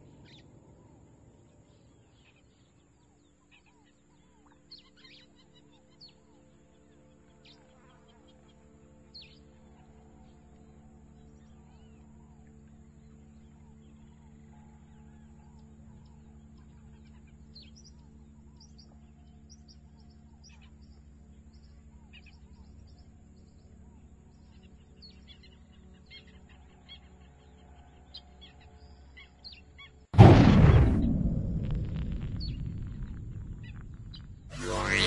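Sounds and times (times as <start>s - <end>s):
low steady hum: 0.0s - 35.0s
loud rushing blast: 30.2s - 35.0s.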